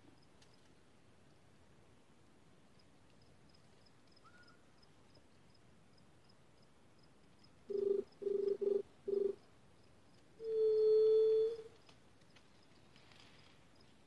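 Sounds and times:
dove cooing: 7.7 - 9.4, 10.4 - 11.8.

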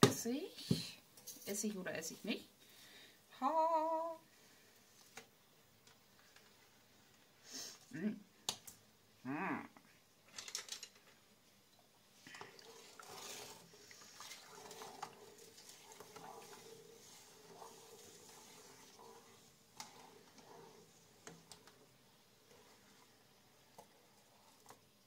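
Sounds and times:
brine simmering: 11.1 - 25.0
spoon scraping a pot: 12.4 - 24.8.

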